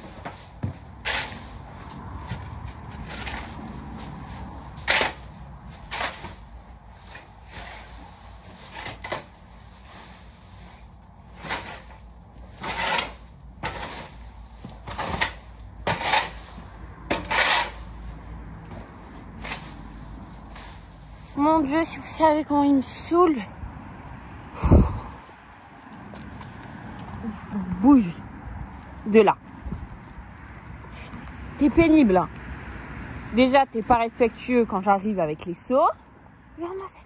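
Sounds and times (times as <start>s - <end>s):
straw being scraped and tossed: 0.0s - 21.6s.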